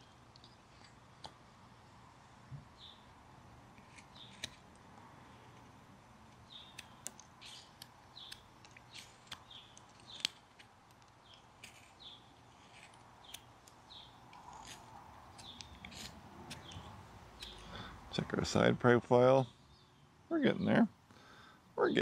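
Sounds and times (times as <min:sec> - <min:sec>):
knife cutting wood: 0:03.7 - 0:04.7, 0:06.6 - 0:17.9.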